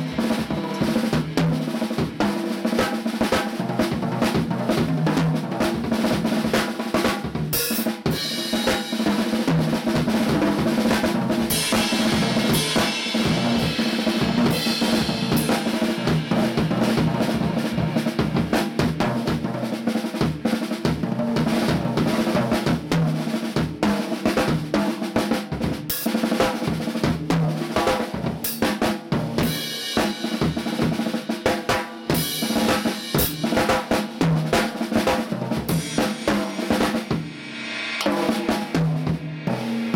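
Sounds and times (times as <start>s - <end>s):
snare drum strokes: 0.0s - 4.0s, 6.2s - 20.9s, 27.7s - 39.9s
bass drum: 0.0s - 24.8s, 25.4s - 39.9s.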